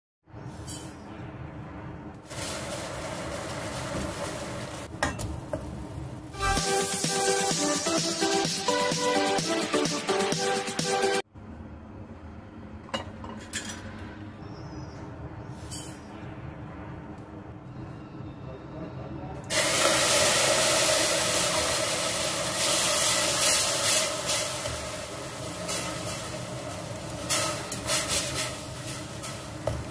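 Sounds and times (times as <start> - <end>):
food sizzling in a pan: 2.3 - 7.1, 19.5 - 29.9
electronic intro music: 6.3 - 11.3.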